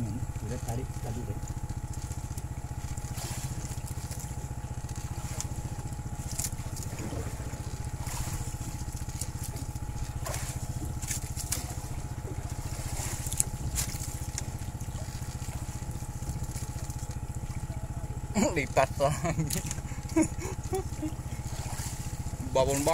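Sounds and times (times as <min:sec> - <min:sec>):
small boat engine chugging: 0:00.0 - 0:22.9.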